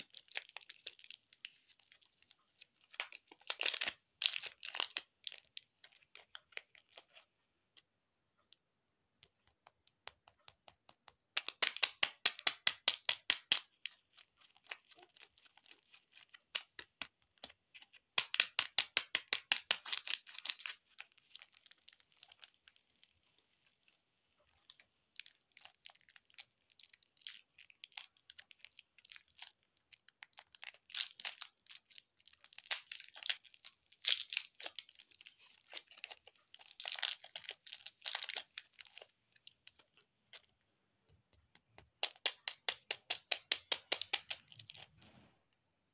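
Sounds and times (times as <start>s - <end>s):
plastic wrappers crinkling: 0.0s - 7.3s, 11.4s - 40.5s.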